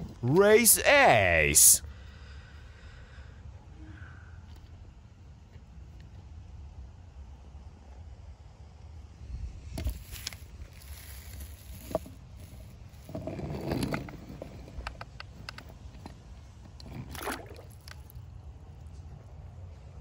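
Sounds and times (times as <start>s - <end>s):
toy tires scraping on wood: 9.8s - 15.4s.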